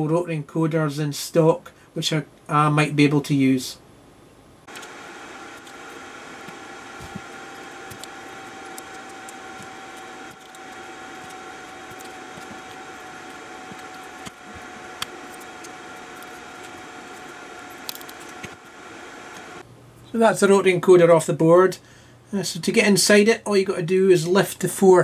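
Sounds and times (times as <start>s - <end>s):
small electric motor humming: 4.7s - 19.6s.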